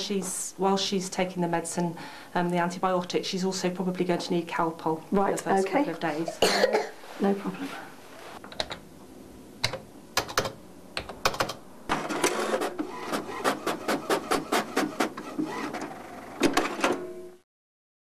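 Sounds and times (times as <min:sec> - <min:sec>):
keyboard keystrokes: 0:09.6 - 0:11.6
inkjet printer printing: 0:11.9 - 0:17.0.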